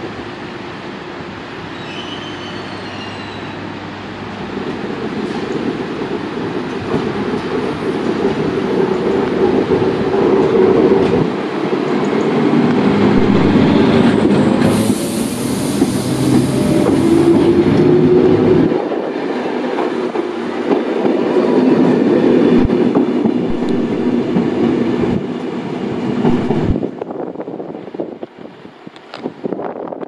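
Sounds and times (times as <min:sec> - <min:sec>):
train rail noise: 0:00.0 - 0:30.0
rising whine: 0:12.6 - 0:18.7.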